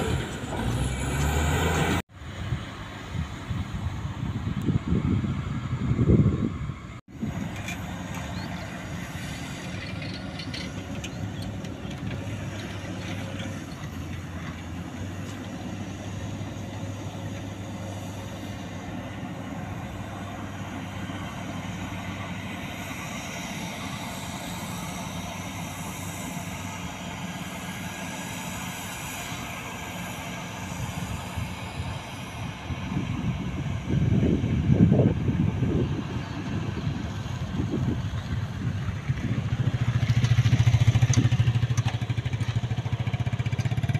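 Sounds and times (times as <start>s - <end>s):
diesel engines humming: 0.0s - 43.9s.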